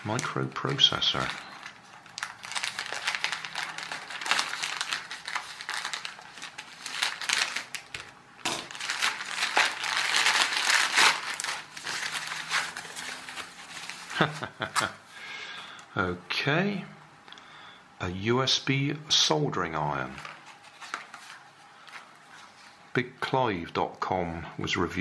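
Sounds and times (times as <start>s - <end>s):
plastic bag crinkling and rustling: 0.0s - 15.0s, 20.0s - 23.0s.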